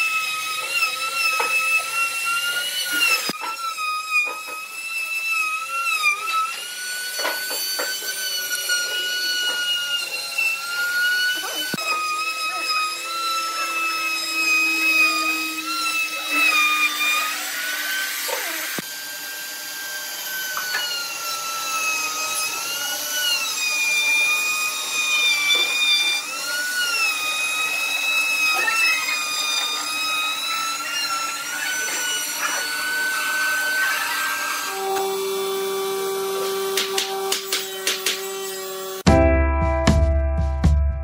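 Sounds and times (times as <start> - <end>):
trim router whining: 0.0 - 39.1
music: 39.1 - 41.0.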